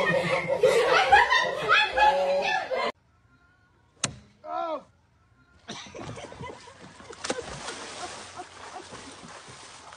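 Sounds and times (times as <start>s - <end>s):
water splashing: 6.0s - 9.9s.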